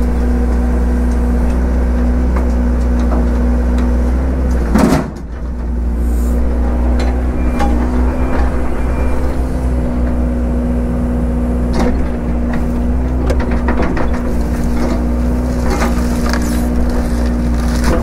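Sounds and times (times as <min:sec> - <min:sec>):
excavator diesel engine running: 0:00.0 - 0:18.0
wood cracking and snapping: 0:13.1 - 0:18.0.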